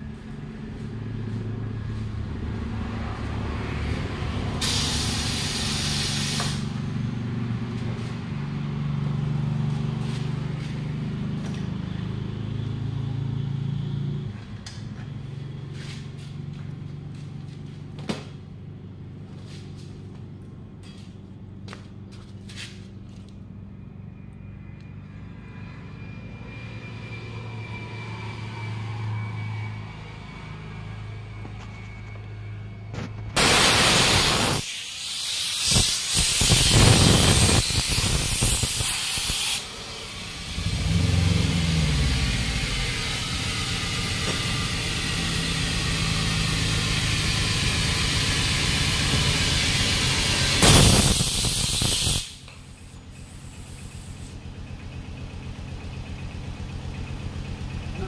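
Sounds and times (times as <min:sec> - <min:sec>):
compressed air hissing: 0:04.6 - 0:06.8, 0:33.4 - 0:41.6, 0:42.7 - 0:54.4.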